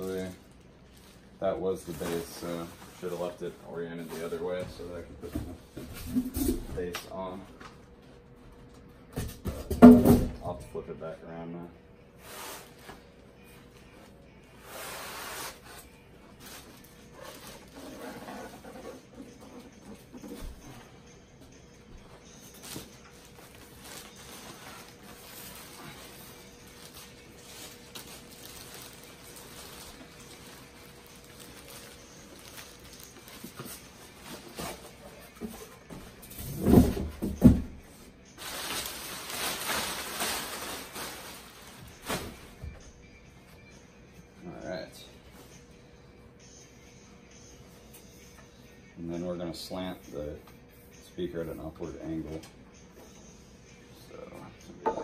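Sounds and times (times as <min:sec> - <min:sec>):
plastic bag crinkling: 0:23.2 - 0:33.6, 0:38.4 - 0:42.1.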